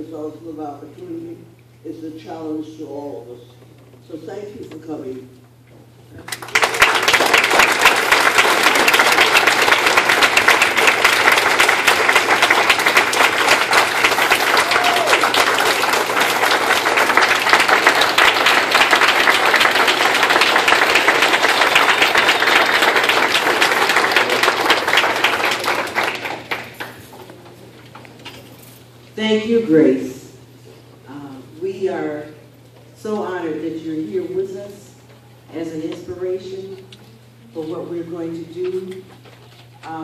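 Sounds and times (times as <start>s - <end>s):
audience applauding: 6.2s - 27.2s.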